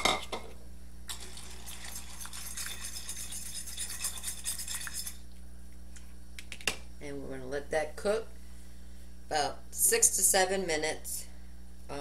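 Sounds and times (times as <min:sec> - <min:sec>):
spoon scraping a pot: 0:01.1 - 0:05.2.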